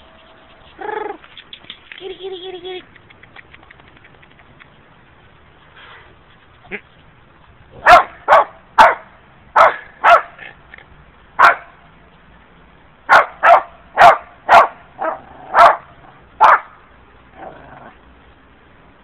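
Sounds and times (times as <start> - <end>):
dog barking: 7.8 - 10.4, 11.4 - 11.8, 13.1 - 16.7.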